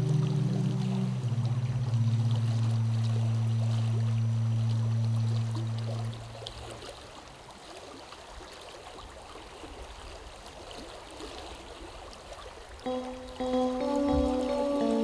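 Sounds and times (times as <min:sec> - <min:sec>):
soft music with held notes: 0:00.0 - 0:02.4, 0:12.8 - 0:15.0
low held tone: 0:00.0 - 0:06.3, 0:12.9 - 0:15.0
brook water flowing: 0:00.0 - 0:15.0.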